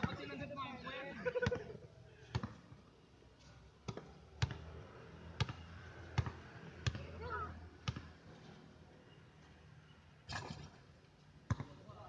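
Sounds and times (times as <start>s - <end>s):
basketball bouncing on hard court: 3.8s - 4.6s, 5.4s - 5.6s, 6.2s - 7.0s, 7.8s - 8.1s, 11.5s - 11.8s.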